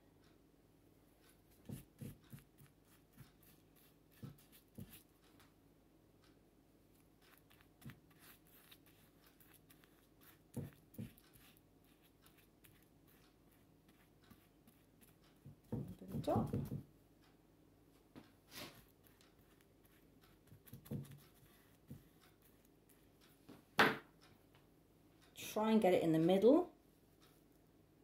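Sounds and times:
brush strokes on pot: 1.2 - 5.3, 7.2 - 16.8, 18.5 - 23.2.

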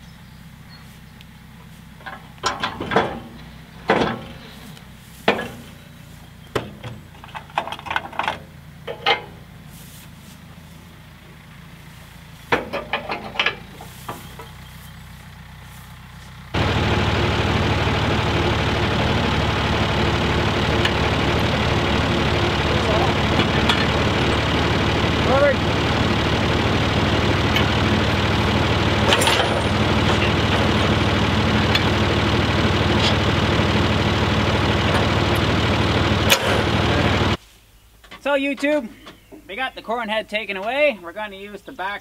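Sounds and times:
engine idling: 0.0 - 37.4
tractor engine running: 0.0 - 37.4
metal clanks and bangs: 2.0 - 4.6, 5.2 - 9.5, 12.4 - 14.6, 20.3 - 37.4.

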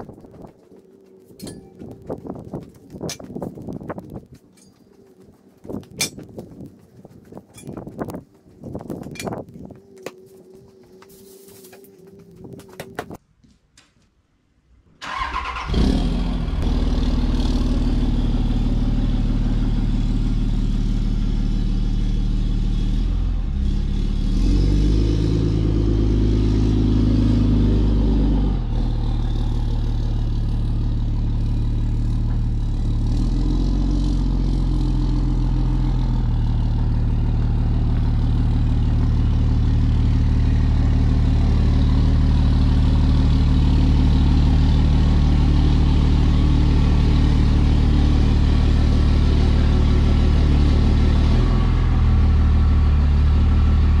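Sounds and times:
pickup truck engine: 15.0 - 54.0.

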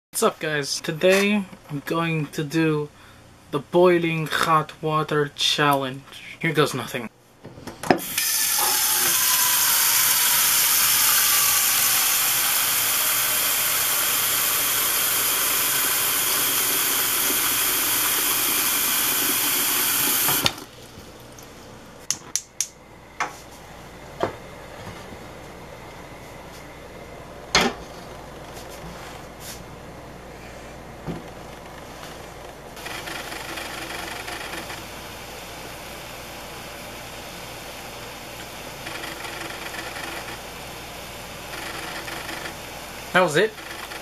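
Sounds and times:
gas stove burner hissing: 8.0 - 20.7, 32.8 - 44.0.

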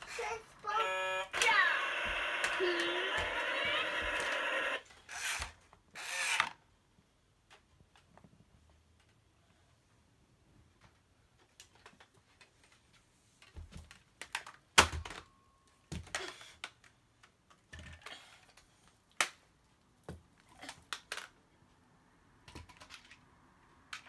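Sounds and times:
plastic toy parts clicking: 13.9 - 15.2, 20.6 - 21.4, 22.4 - 23.3.

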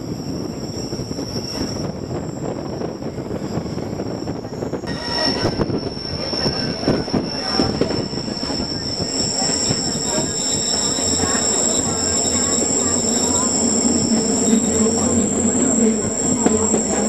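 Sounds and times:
train wheels rumbling on rails: 0.0 - 17.0
high-pitched wheel squeal: 4.9 - 17.0.

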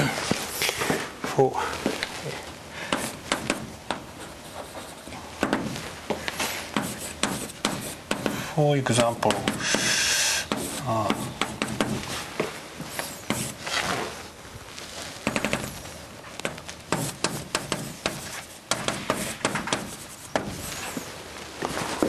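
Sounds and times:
chalk scratching on chalkboard: 3.0 - 5.2, 6.7 - 12.0, 12.8 - 14.0, 16.9 - 21.1.

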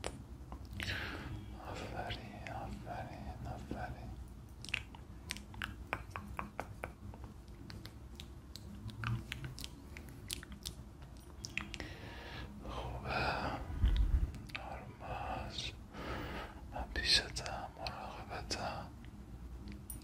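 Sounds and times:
wet mouth clicks and smacks: 4.5 - 11.9.

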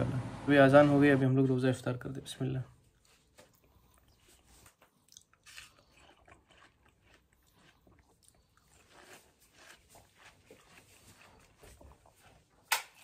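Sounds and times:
person chewing with crunches: 2.8 - 13.0.

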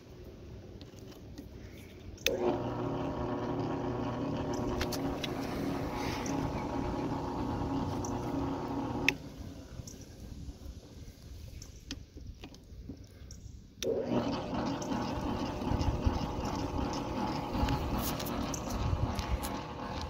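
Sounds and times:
mixer motor humming: 2.2 - 10.2, 13.8 - 20.0.

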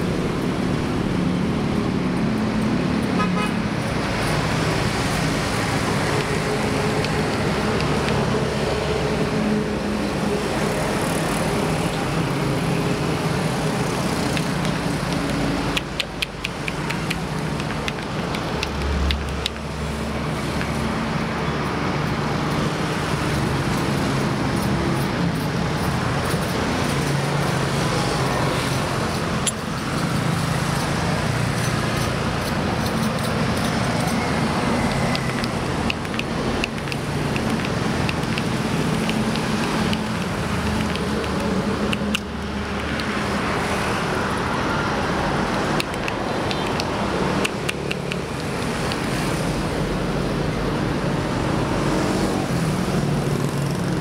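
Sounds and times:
highway traffic noise: 0.0 - 54.0.

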